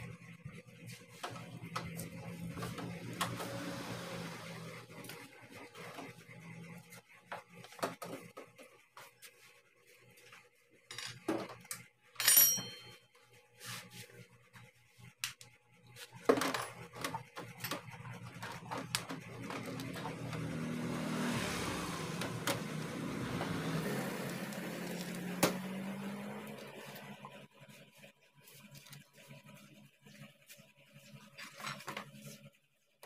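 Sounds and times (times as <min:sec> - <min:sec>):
metal clinks of bolts and tool: 0:12.2 - 0:13.0.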